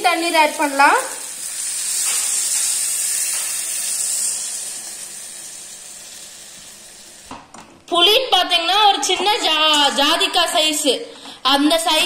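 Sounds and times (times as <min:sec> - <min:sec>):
liquid sizzling in hot oil: 0:00.0 - 0:07.4.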